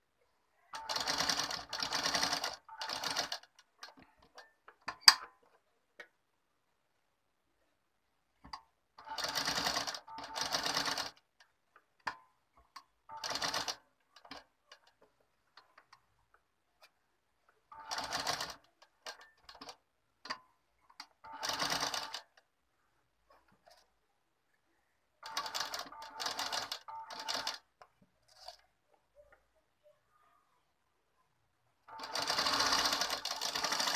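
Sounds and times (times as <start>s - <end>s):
sewing machine stitching: 0.8s - 5.2s, 9.0s - 11.2s, 13.1s - 15.0s, 17.7s - 19.8s, 21.0s - 22.4s, 25.2s - 27.7s, 28.3s - 28.6s, 31.9s - 33.9s.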